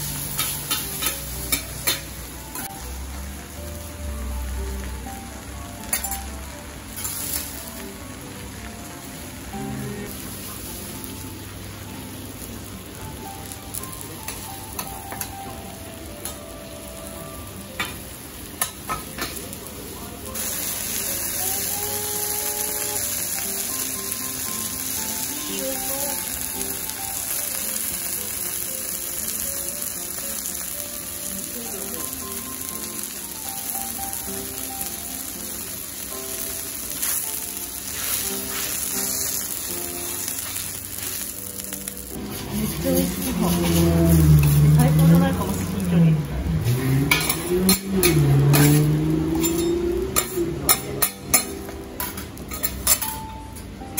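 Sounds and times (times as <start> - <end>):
faint background music: 0.0 - 53.9
food sizzling on griddle: 0.0 - 53.9
metal spatulas scraping griddle: 42.2 - 45.1, 47.1 - 53.1.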